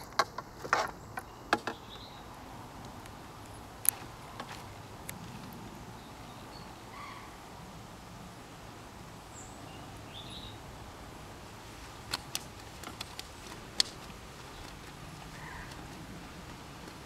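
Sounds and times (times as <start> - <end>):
sharp clicks and taps: 12.0 - 17.0.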